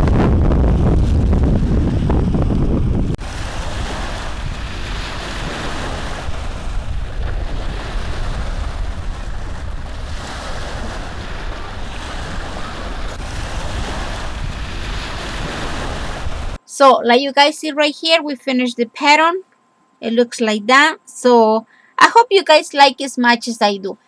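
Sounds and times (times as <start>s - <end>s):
low rumble: 0.0s - 5.5s
steady rushing noise: 0.0s - 16.6s.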